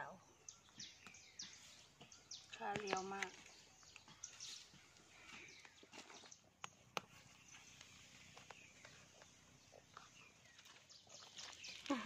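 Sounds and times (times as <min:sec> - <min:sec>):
footsteps on dry leaves: 0:07.4 - 0:12.0.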